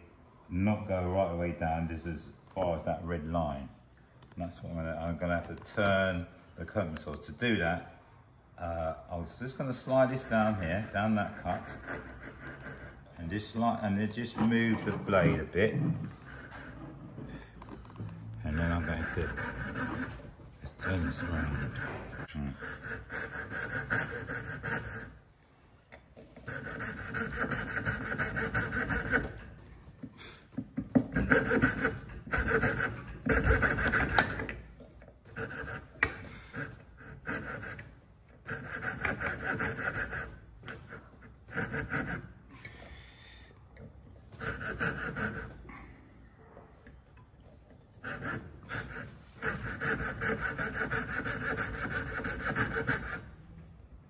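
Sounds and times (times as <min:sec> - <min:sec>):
saw rasping through wood: 0:09.6 - 0:13.8, 0:14.4 - 0:17.5, 0:18.4 - 0:25.2, 0:26.4 - 0:29.6, 0:30.9 - 0:34.6, 0:35.3 - 0:42.4, 0:44.3 - 0:45.6, 0:48.0 - 0:53.3.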